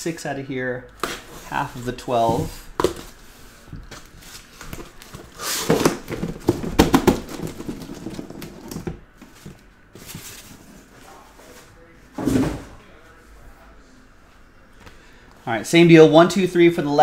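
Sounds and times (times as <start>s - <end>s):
cardboard rustling: 2.2s - 11.0s
cardboard boxes knocking on table: 5.6s - 9.6s.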